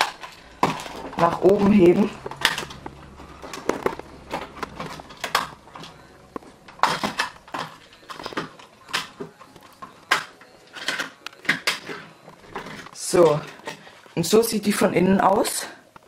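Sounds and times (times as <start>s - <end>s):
plastic housing clicking and creaking: 2.2s - 14.2s.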